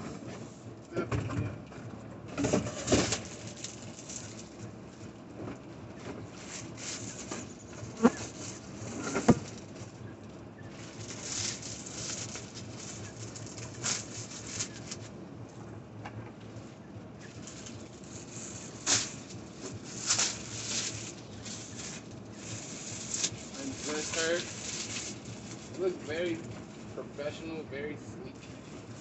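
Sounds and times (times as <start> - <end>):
plastic bag crinkling: 2.7 - 4.7, 10.7 - 15.2, 17.3 - 26.9.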